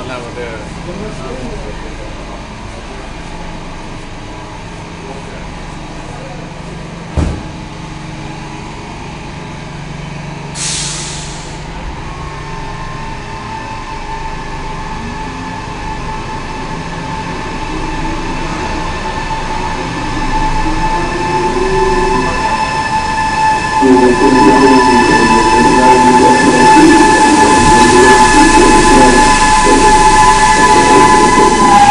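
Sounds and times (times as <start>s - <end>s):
train motor whine: 7.0s - 31.9s
sharp thump: 7.1s - 7.6s
air hiss: 10.6s - 11.6s.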